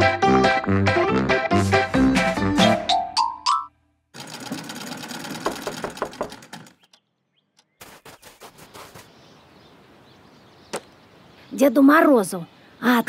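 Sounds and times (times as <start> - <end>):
sewing machine rattling: 4.2 - 6.9
sewing machine stitch clicks: 4.2 - 7.0.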